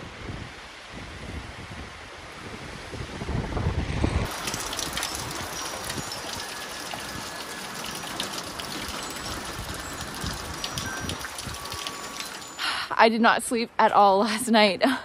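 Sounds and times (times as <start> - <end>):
wind rushing through trees: 0.0 - 13.6.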